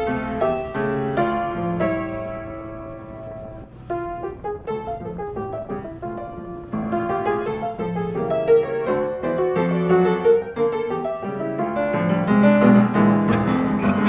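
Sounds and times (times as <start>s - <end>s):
piano melody of short notes: 0.0s - 14.0s.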